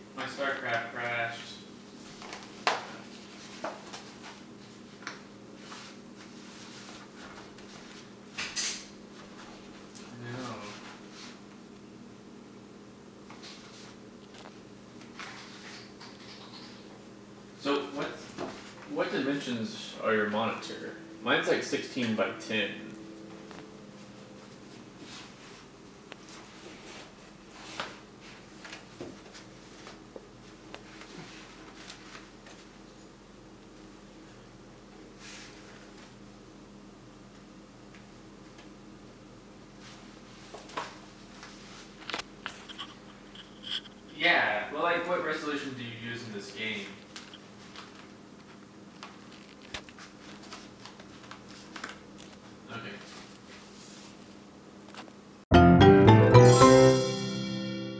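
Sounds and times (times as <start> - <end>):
faint room hum: 0.0 - 55.4
steady low hum: 16.8 - 28.6.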